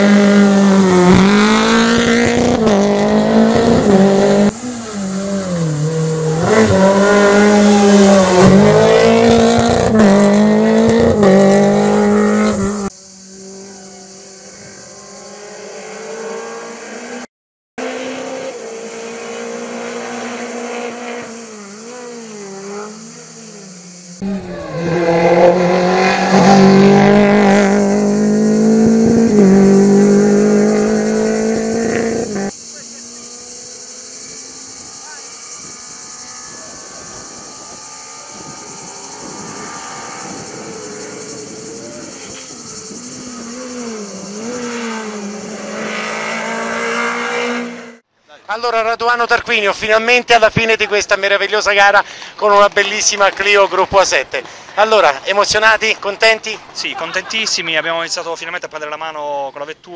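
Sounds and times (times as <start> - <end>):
rally car engine revving: 0.0 - 48.1.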